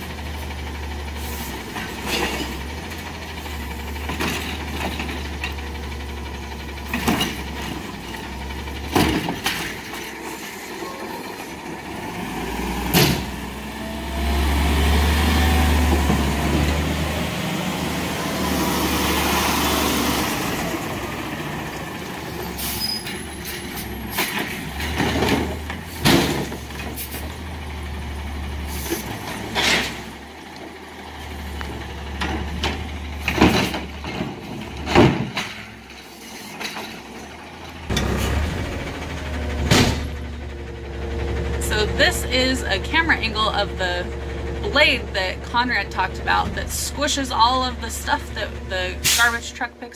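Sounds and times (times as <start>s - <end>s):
garbage truck engine rumbling: 0.0s - 49.9s
clunks and bangs: 1.7s - 2.8s, 3.9s - 5.8s, 6.8s - 10.3s, 12.8s - 13.5s, 23.0s - 27.3s, 28.8s - 30.2s, 32.0s - 40.5s.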